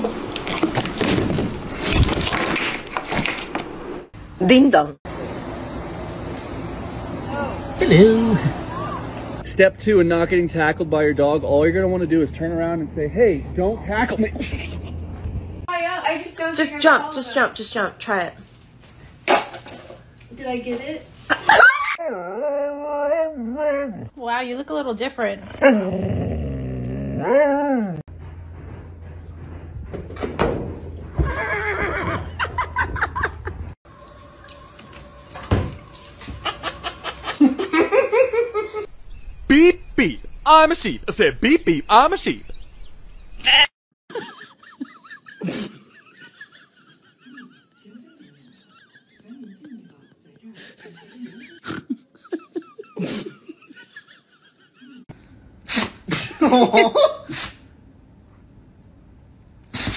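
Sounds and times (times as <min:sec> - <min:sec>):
horse whinnying: 0:31.2 - 0:32.4
dog sneeze-like blasts: 0:55.7 - 0:56.4, 0:57.3 - 0:57.7.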